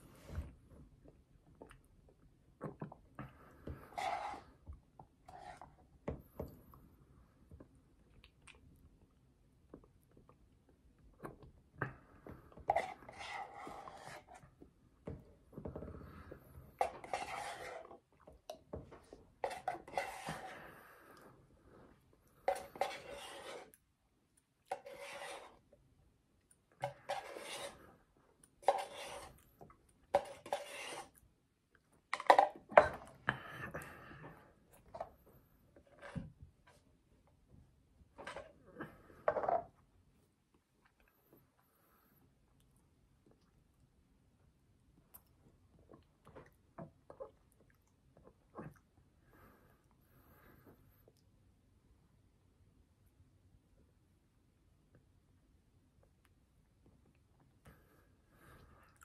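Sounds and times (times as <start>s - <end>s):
plastic spoon scraping paper cup: 3.9s - 4.6s, 12.7s - 14.4s, 16.8s - 18.0s, 19.4s - 20.6s, 22.5s - 23.8s, 24.7s - 25.6s, 26.8s - 27.9s, 28.6s - 29.4s, 30.2s - 31.2s
eating and mouth sounds: 8.0s - 10.5s.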